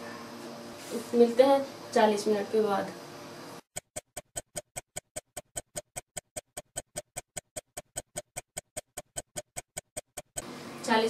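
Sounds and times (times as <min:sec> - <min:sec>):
clock ticking rapidly: 0:03.7 - 0:10.4.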